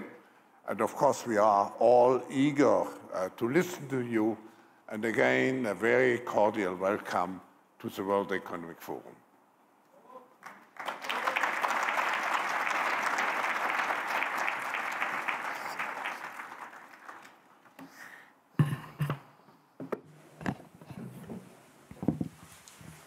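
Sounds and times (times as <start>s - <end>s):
audience applause: 10.4s - 17.6s
microphone thumps and knocks: 19.8s - 22.4s.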